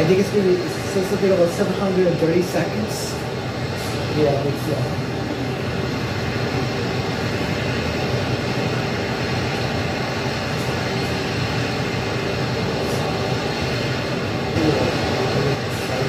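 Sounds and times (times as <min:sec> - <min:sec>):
rocket engine roaring: 0:00.0 - 0:16.0.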